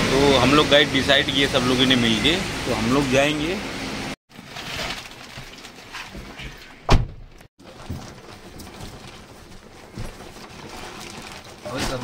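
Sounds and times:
door slamming: 0:06.8 - 0:07.4.

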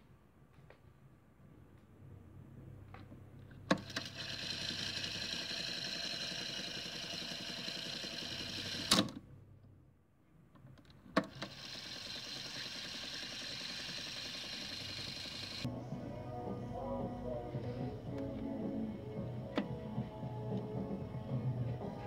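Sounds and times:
tape winding motor whir: 0:03.7 - 0:09.2, 0:11.2 - 0:15.7.

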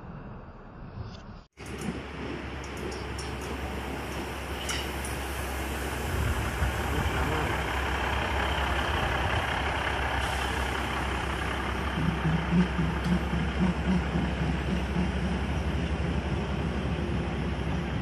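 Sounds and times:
train rumbling past platform: 0:01.6 - 0:18.0
low rhythmic pulsing: 0:10.9 - 0:18.0.

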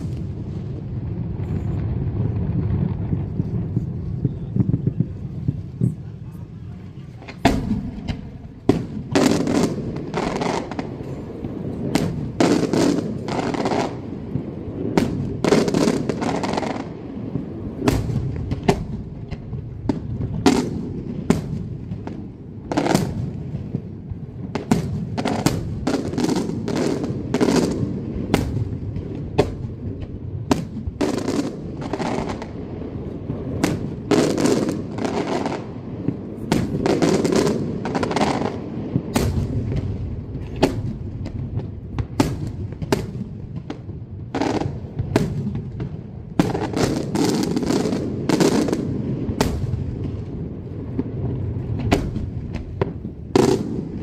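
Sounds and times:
rumbling echo: 0:00.0 - 0:15.4
fireworks bangs: 0:00.0 - 0:54.0.

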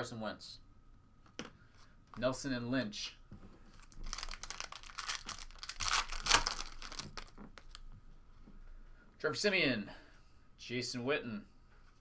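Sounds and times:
cards rustling: 0:03.7 - 0:07.8
wrapper crinkling and tearing: 0:03.8 - 0:07.8.

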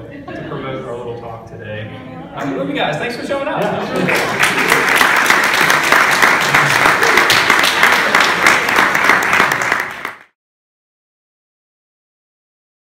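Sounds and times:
audience applauding: 0:03.9 - 0:10.4.

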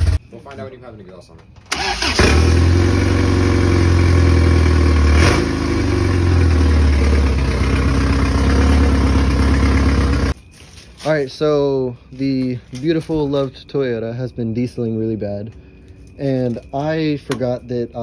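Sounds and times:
car engine running: 0:02.2 - 0:10.4.

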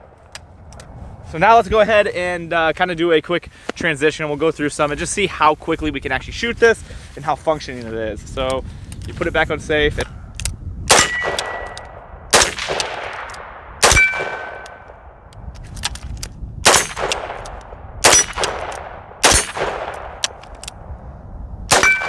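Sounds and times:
rifle shots: 0:10.9 - 0:15.1, 0:16.6 - 0:20.4, 0:21.7 - 0:22.0.

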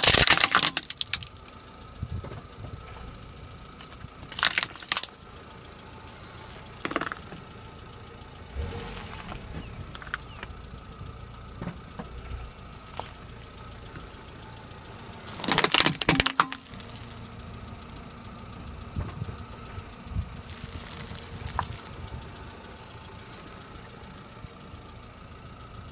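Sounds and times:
tyre crushing seed pods: 0:00.0 - 0:01.6, 0:03.8 - 0:05.3, 0:06.6 - 0:07.4, 0:15.2 - 0:17.2, 0:20.5 - 0:22.0
sharp crack: 0:00.0 - 0:01.7, 0:03.8 - 0:05.6, 0:15.2 - 0:17.3
car engine running low: 0:00.0 - 0:25.9.

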